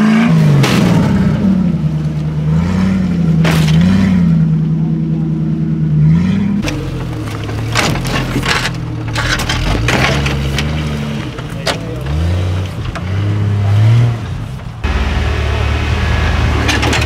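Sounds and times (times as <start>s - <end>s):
engine revving at low speed: 0.0s - 17.0s
sharp cracks and knocks: 3.4s - 4.0s, 6.6s - 13.1s.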